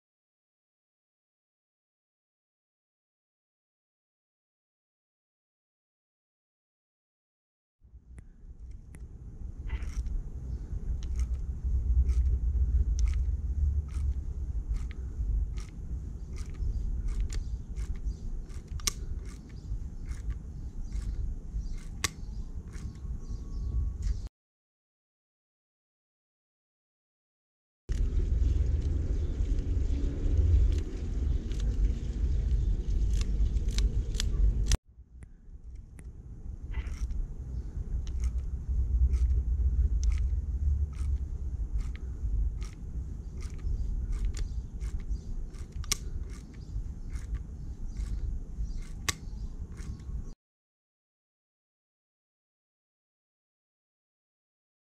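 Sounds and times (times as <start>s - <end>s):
low steady rumble: 7.8s - 24.3s, 27.9s - 50.4s
bike freehub ratcheting clicks: 9.7s - 10.2s, 10.8s - 23.0s, 32.5s - 34.8s, 36.7s - 50.3s.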